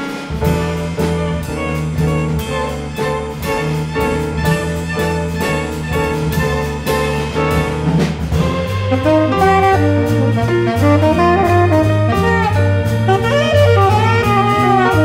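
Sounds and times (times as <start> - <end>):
strings: 0.0 - 13.1
bass line: 0.0 - 15.0
drum kit: 0.0 - 15.0
tenor saxophone solo: 8.9 - 15.0.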